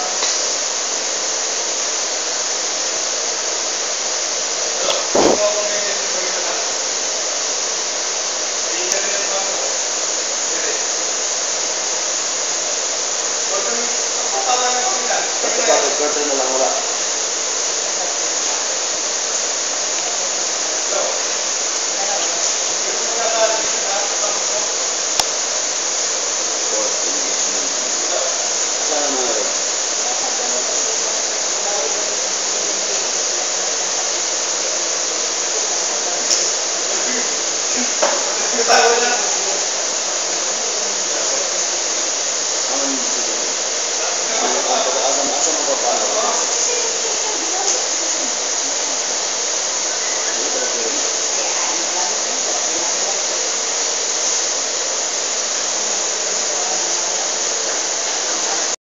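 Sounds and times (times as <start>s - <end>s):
loud steady hissing: 0.0s - 58.8s
faint indistinct voices: 12.4s - 55.2s.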